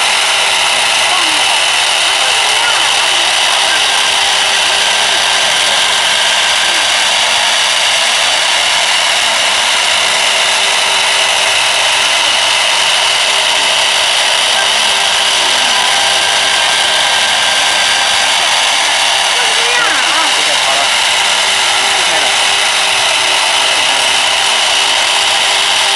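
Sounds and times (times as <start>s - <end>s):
router spindle whine: 0.0s - 25.9s
wood being cut hiss: 0.0s - 25.9s.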